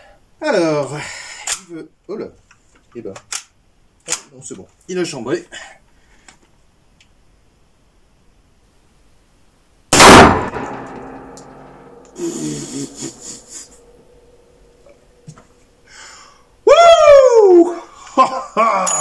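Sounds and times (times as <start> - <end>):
loud rifle shot with ringing: 9.9 - 12.0.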